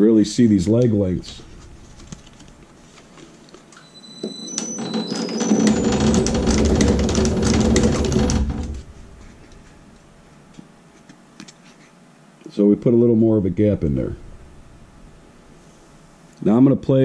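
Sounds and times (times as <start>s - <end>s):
stitching machine running: 4.5s - 9.0s.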